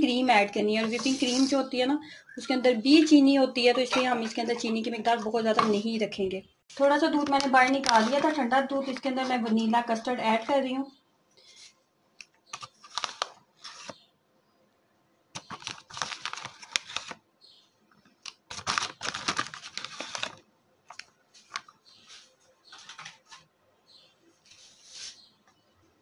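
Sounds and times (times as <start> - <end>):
spoon scraping powder: 0.7 - 1.8, 7.1 - 10.6.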